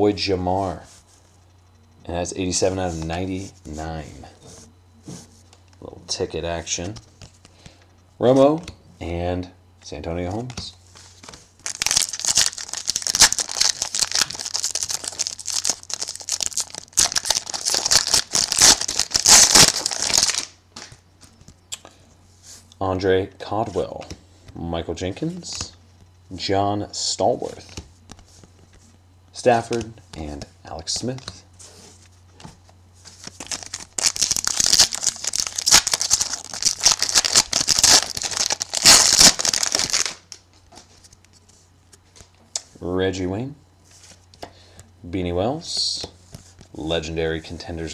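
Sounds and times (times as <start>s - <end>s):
wrapper crinkling and tearing: 11.6s - 20.9s, 33.2s - 40.3s.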